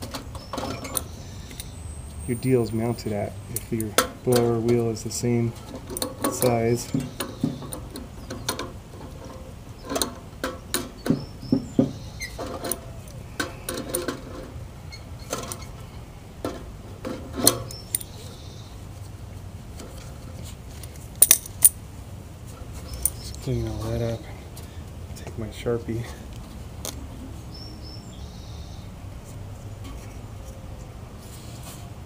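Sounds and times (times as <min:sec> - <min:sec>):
metal clicks and scraping: 0:00.0 - 0:01.8, 0:02.4 - 0:18.4, 0:19.7 - 0:21.8, 0:22.5 - 0:23.9.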